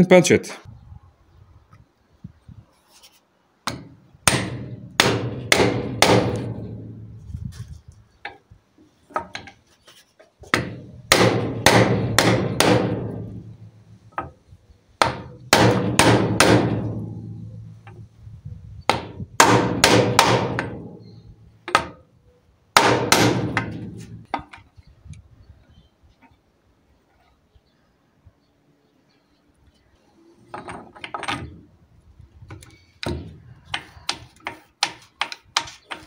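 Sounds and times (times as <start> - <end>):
hammer striking metal punch: 3.7 - 7.2, 10.5 - 14.3, 15.0 - 18.0, 18.9 - 21.1, 21.7 - 22.0, 22.8 - 24.4.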